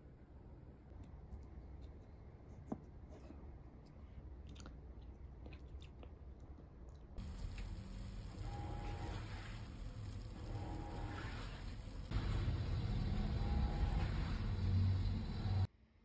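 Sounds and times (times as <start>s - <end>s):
low hum: 7.2s - 15.7s.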